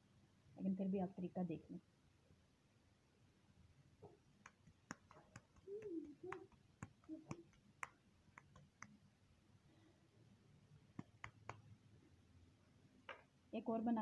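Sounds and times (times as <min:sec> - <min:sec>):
wet squelches of hands shaping patties: 0:04.1 - 0:10.0, 0:10.8 - 0:11.9.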